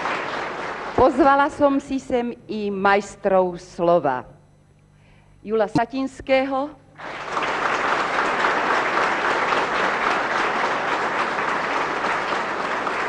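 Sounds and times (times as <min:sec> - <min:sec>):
audience applauding: 0:00.0 - 0:01.2, 0:07.0 - 0:13.0.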